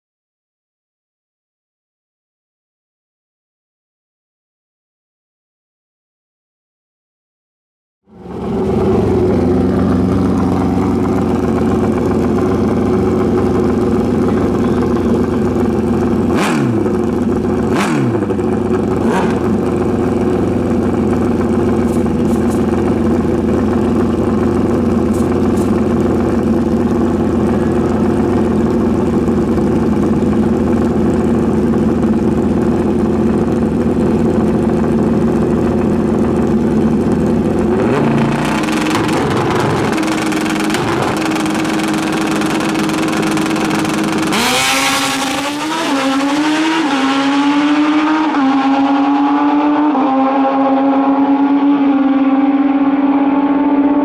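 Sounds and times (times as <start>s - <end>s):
motorcycle engines idling loudly: 8.1s - 46.2s.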